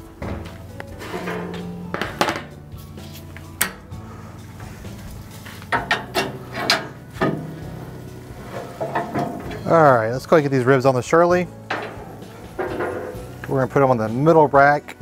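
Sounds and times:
steel door swinging open: 0.2 - 2.6, 5.7 - 10.0, 11.6 - 13.5
grate hook scraping on grate: 5.6 - 7.6, 8.4 - 9.8, 11.6 - 13.6
sharp metal clanks: 5.7 - 7.7, 11.6 - 13.4.

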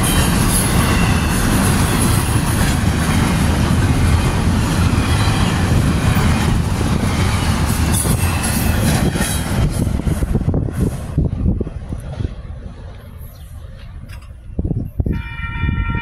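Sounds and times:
train wheels squealing: 0.0 - 2.4
train wheels rumbling and clacking: 0.0 - 15.2.

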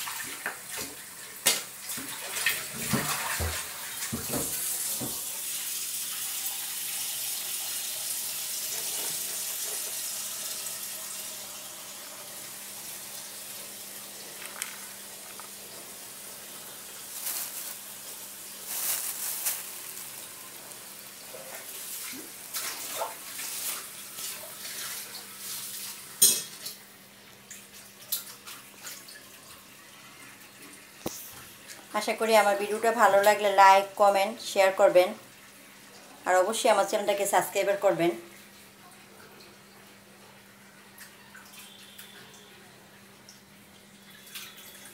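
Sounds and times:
water running from a tap: 0.0 - 44.9
dishes and utensils clinking: 26.2 - 26.8.

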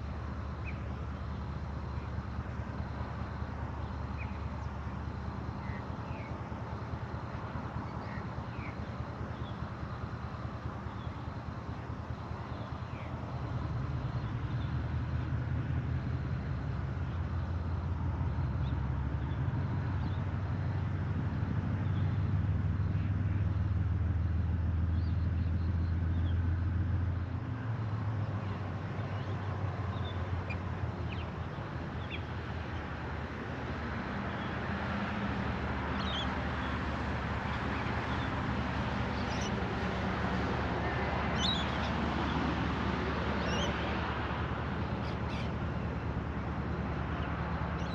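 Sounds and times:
locomotive engine hum: 0.0 - 47.9
birds chirping: 28.2 - 32.9, 35.9 - 38.4, 39.0 - 39.8, 41.3 - 42.4, 43.3 - 43.8, 44.9 - 46.1, 47.1 - 47.9.

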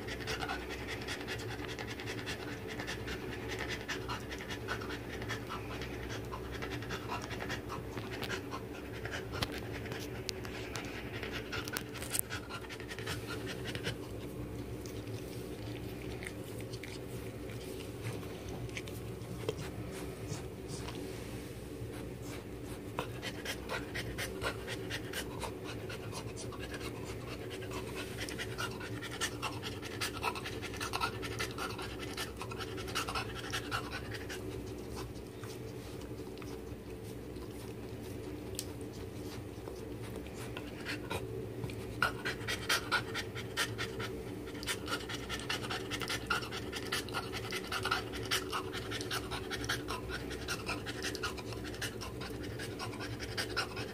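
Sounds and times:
dog panting: 0.0 - 21.1, 21.8 - 53.9
steady low hum: 0.0 - 53.9.

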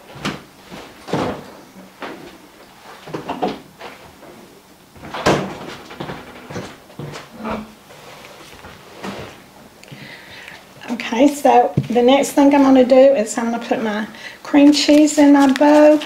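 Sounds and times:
refrigerator door shutting: 5.1 - 7.7.

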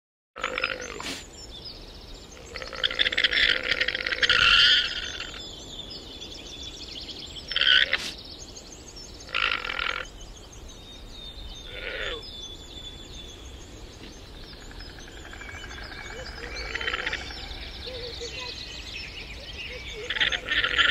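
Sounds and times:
llama rasping calls: 2.4 - 5.4, 7.5 - 8.2, 11.7 - 12.2, 15.1 - 18.5, 19.7 - 20.9.

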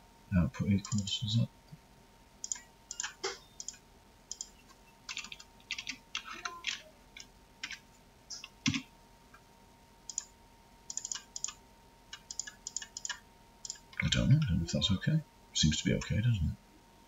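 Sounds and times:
typing on computer keyboard: 2.4 - 7.8, 8.4 - 8.9, 10.1 - 10.3, 10.9 - 14.0.

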